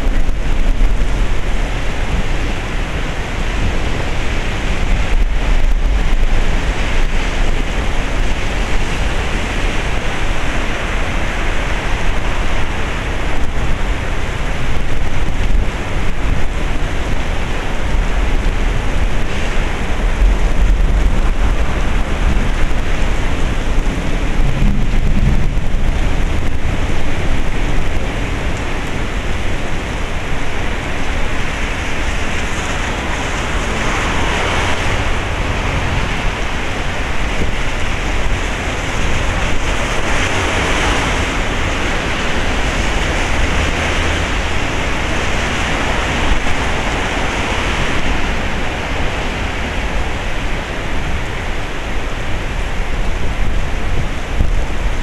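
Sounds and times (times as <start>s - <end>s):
low rumble: 0.0s - 40.0s
heavy rain pouring: 0.0s - 55.0s.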